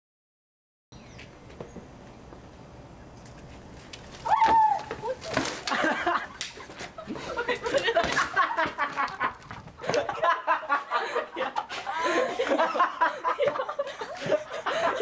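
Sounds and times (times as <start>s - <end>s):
people laughing and snickering: 5.0s - 15.0s.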